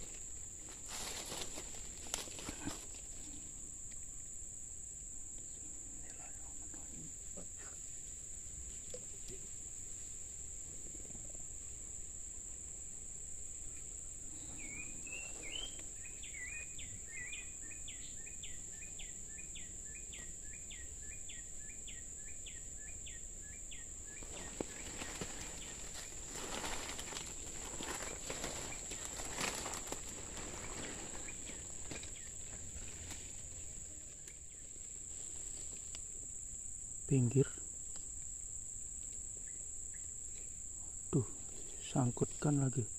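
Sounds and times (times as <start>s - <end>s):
leaves and undergrowth rustling: 0.0s - 3.6s, 24.0s - 37.4s
insects droning: 0.0s - 42.9s.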